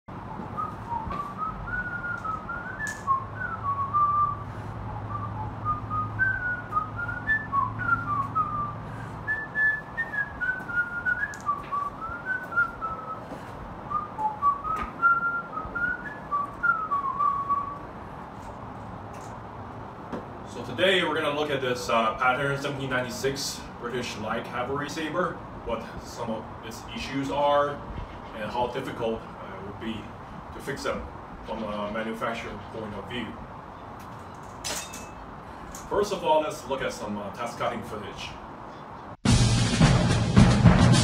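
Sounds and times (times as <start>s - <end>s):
person whistling a tune: 0.3s - 17.8s.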